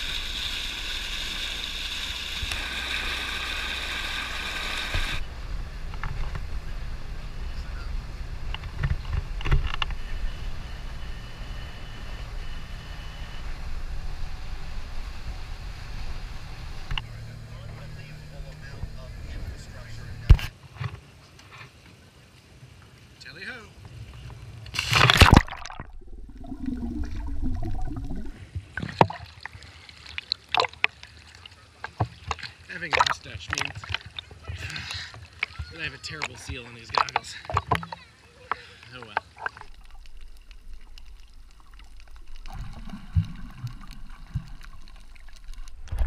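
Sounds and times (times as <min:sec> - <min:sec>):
muffled underwater wash: 0:00.0 - 0:20.5, 0:21.8 - 0:46.0
underwater bubbling and gurgling: 0:24.2 - 0:46.0
body splashing into water: 0:24.8 - 0:29.6
short clicks and crackles: 0:36.2 - 0:46.0.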